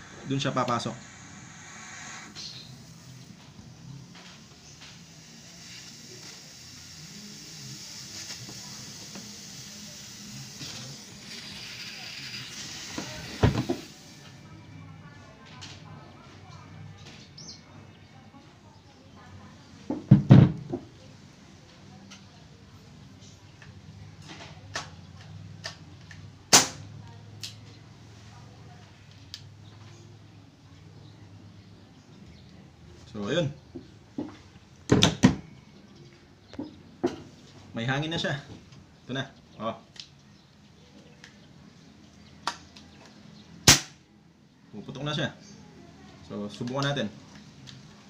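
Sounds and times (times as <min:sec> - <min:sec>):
air hissing through fitting: 0:00.0 - 0:14.4
airgun loud sharp snap: 0:26.5 - 0:26.8, 0:43.6 - 0:44.0.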